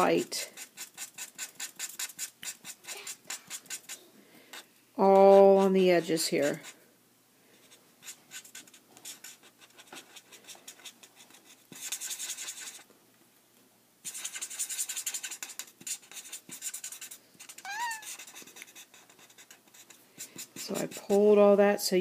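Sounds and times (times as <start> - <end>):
marker scratching across card: 0.0 - 6.8, 7.6 - 12.8, 14.0 - 21.3
short high squeak: 17.6 - 18.1.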